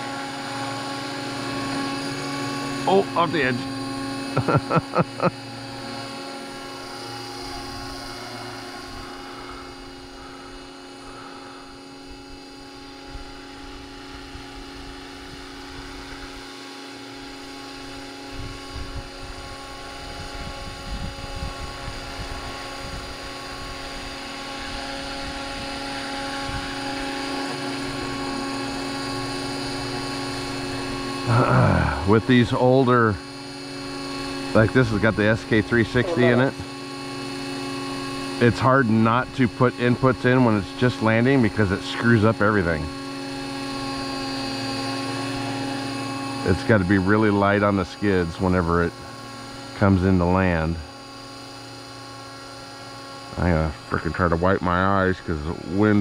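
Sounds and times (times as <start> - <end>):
model helicopter rotor whine: 0.0 - 56.0.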